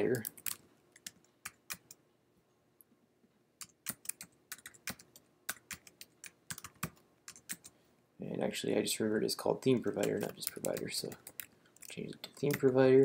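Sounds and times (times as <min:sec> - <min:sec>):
typing on computer keyboard: 0:03.6 - 0:07.7, 0:09.9 - 0:12.8.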